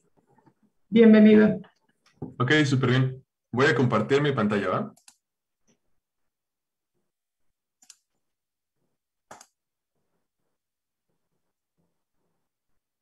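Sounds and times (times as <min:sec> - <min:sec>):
computer mouse clicks: 0:04.9 - 0:05.8, 0:07.8 - 0:08.2, 0:09.2 - 0:09.6.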